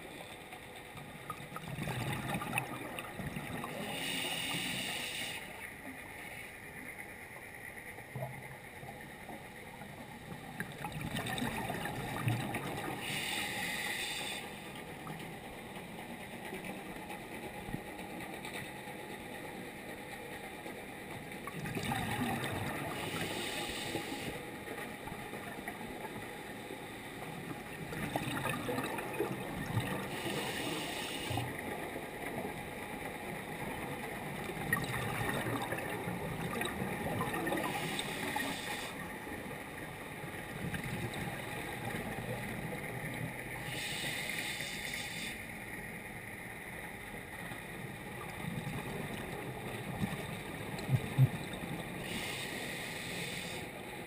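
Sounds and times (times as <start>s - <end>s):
muffled underwater hiss: 0.0s - 18.0s, 18.7s - 54.0s
gurgling exhaled bubbles: 1.3s - 4.1s, 10.5s - 13.2s, 21.5s - 23.3s, 27.6s - 30.6s, 34.4s - 38.4s.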